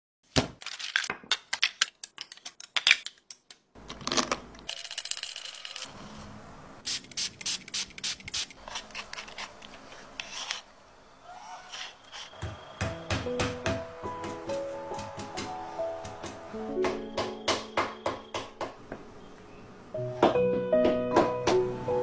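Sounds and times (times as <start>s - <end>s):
metal rod scraping clay grit: 8.6s - 10.7s, 11.3s - 12.4s.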